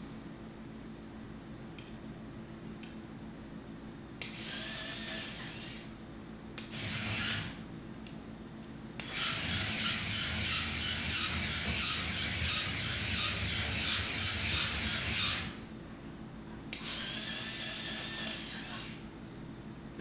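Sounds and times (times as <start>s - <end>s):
toy electric motor whirring: 4.3s - 5.9s, 6.7s - 7.6s, 9.0s - 15.6s, 16.8s - 19.0s.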